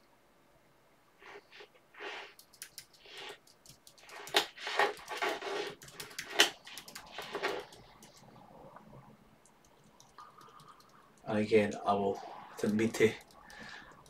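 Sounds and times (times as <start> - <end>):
person breathing close to microphone: 12.2 - 14.0.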